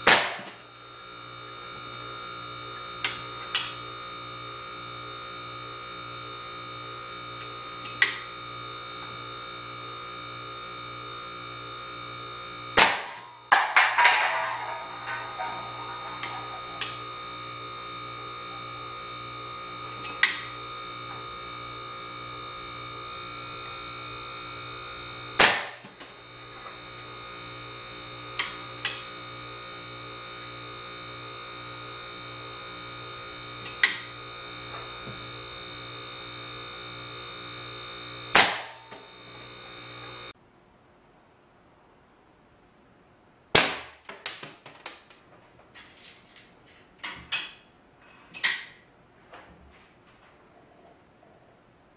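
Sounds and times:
steady hum: 0:00.0 - 0:44.1
air rifle shot cracks: 0:00.1 - 0:00.5, 0:25.4 - 0:25.8, 0:43.6 - 0:44.1.

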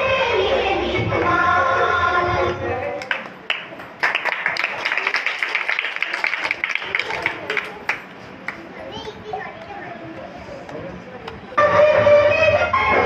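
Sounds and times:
people chattering: 0:02.2 - 0:13.0
quick hand clapping: 0:03.0 - 0:08.6.

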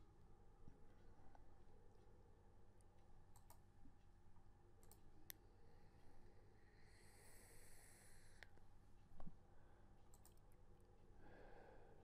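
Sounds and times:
computer mouse clicks: 0:03.3 - 0:03.7, 0:04.8 - 0:05.4, 0:10.1 - 0:10.4.

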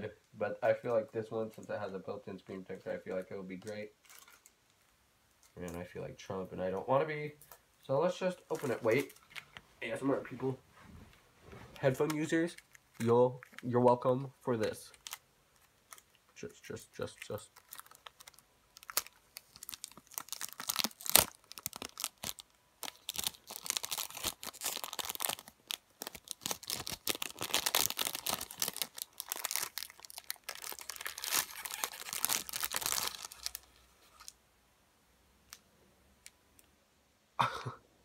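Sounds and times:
plastic wrapper crinkling and tearing: 0:02.8 - 0:04.8, 0:08.5 - 0:09.6, 0:11.8 - 0:34.4.

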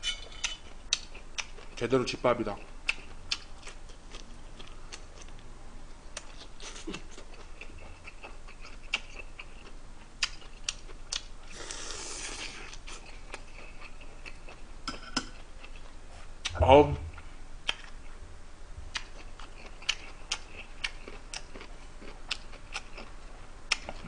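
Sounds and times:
chewing and mouth noises: 0:02.6 - 0:05.4, 0:06.1 - 0:14.6, 0:18.9 - 0:24.0.

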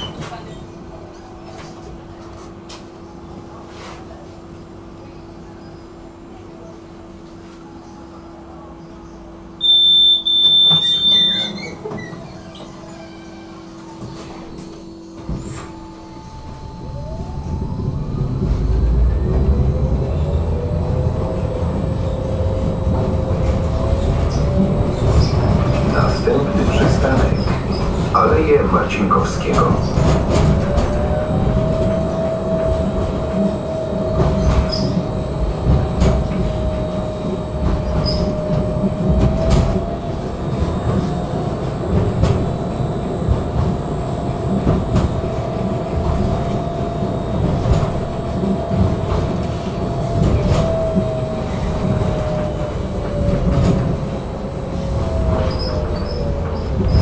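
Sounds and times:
tram wheels rumbling on rails: 0:00.0 - 0:57.0
steady whine: 0:13.7 - 0:57.0.

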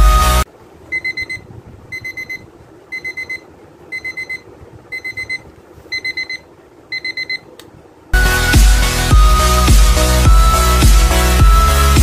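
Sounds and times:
alarm clock beeping: 0:00.9 - 0:06.4.

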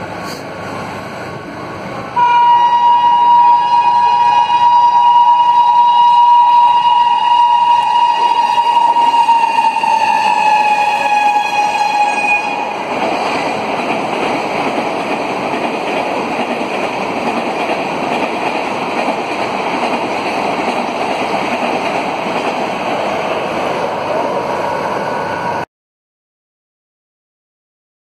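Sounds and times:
train coaches rushing over rails: 0:00.0 - 0:25.6
locomotive horn: 0:02.2 - 0:12.8.

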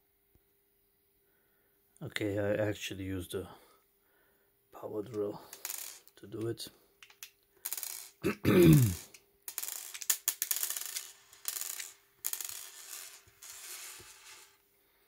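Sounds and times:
screws rubbing and clicking: 0:07.0 - 0:08.2, 0:09.0 - 0:14.6.

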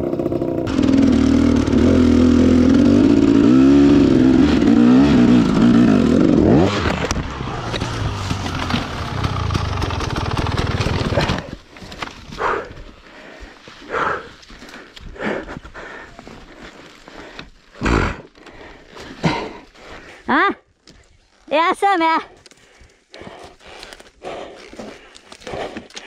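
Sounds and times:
dirt bike engine revving: 0:00.0 - 0:11.5.

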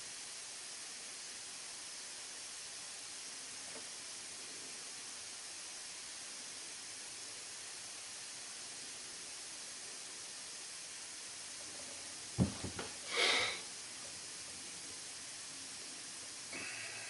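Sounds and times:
faint hiss: 0:00.0 - 0:17.0
soft knocks: 0:12.4 - 0:13.0.

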